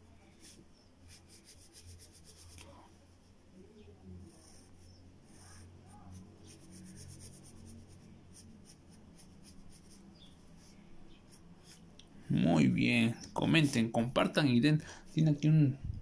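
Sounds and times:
pencil scratching on paper: 0.3 - 2.6, 4.3 - 11.8.

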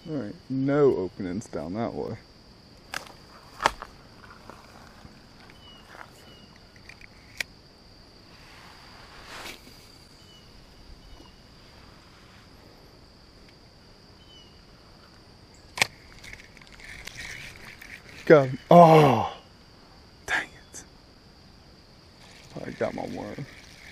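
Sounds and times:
fishing reel clicks: 22.2 - 23.9.

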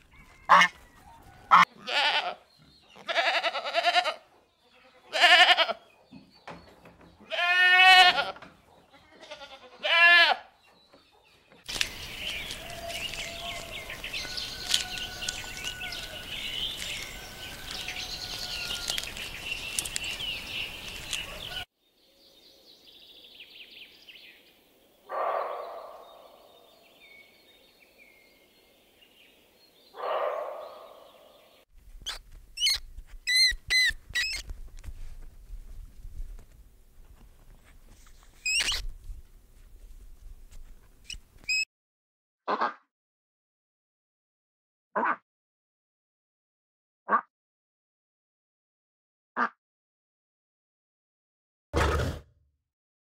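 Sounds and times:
birds chirping: 0.0 - 34.5
goat bleating: 1.5 - 5.8, 7.2 - 10.5
deer barking: 25.1 - 26.2, 30.0 - 31.0
monkey squeaking: 32.0 - 34.5, 38.4 - 38.8, 41.0 - 41.6.

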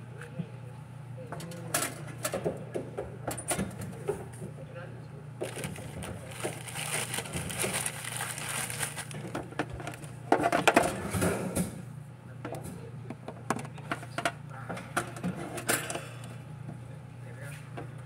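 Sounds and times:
plastic bag crinkling: 5.4 - 10.1.

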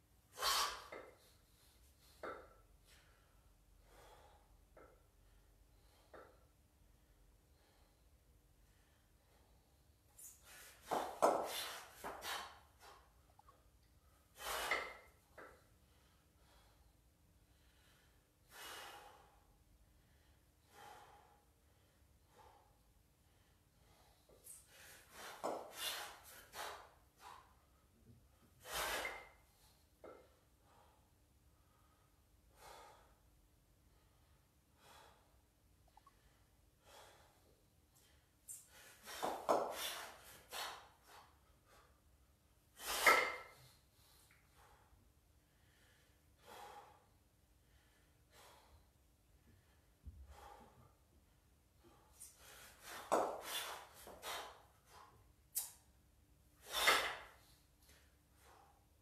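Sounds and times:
person breathing while exercising: 0.3 - 59.0
person breathing hard: 42.9 - 51.1.

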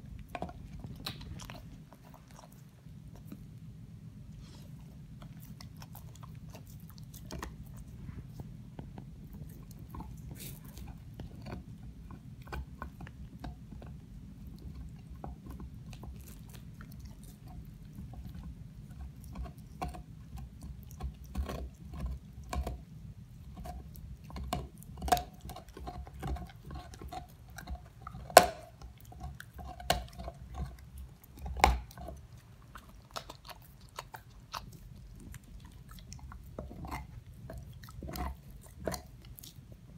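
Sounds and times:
dog chewing bone: 0.0 - 39.9
steady low hum: 0.0 - 39.9
teeth clicking on bone: 8.8 - 39.9.

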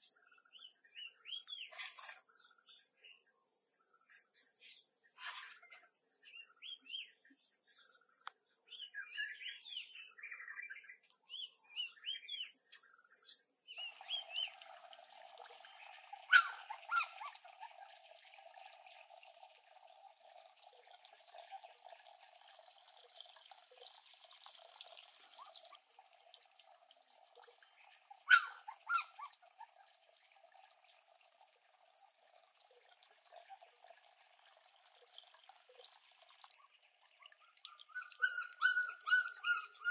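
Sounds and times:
faint high chirps: 0.0 - 39.9
water trickling into pond: 0.0 - 39.9.

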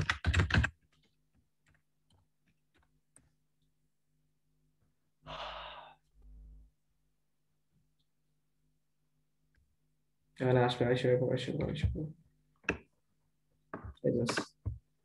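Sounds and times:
person sighing into microphone: 5.2 - 6.0.

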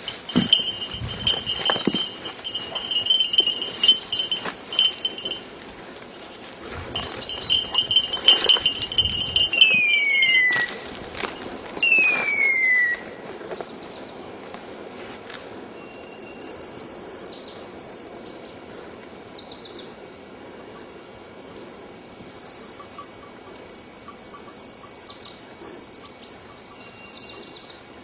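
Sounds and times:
dog bell ringing: 0.0 - 5.6, 6.9 - 11.4
falling whistle-like screeches: 9.6 - 10.9, 11.8 - 13.2.

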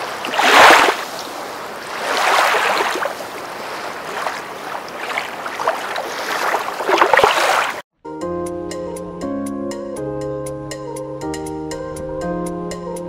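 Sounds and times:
waves washing onto rocky shore: 0.0 - 7.8.

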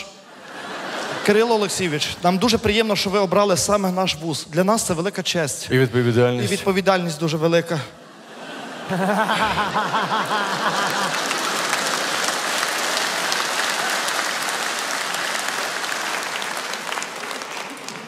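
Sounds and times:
audience laughing: 0.0 - 2.4, 7.7 - 12.8
audience applauding: 8.9 - 18.0.

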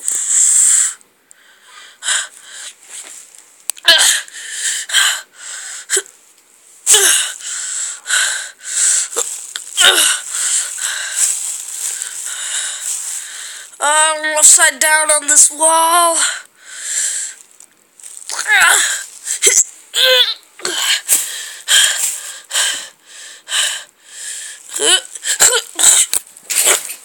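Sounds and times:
person wheezing breathily: 6.9 - 13.7.

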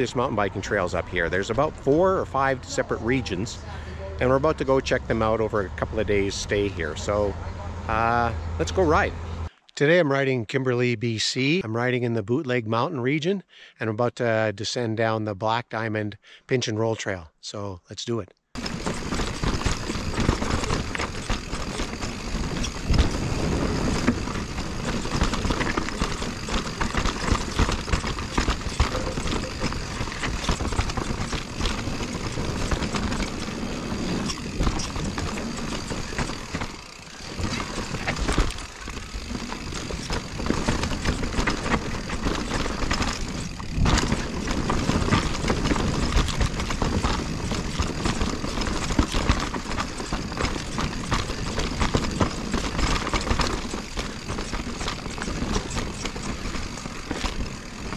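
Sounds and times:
bike frame clattering over bumps: 18.6 - 57.9
bike tyres rushing on dirt: 18.6 - 57.9.

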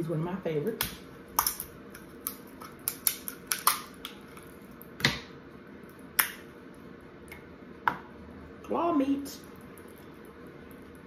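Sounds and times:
scissors cracking crab shell: 0.8 - 4.2.

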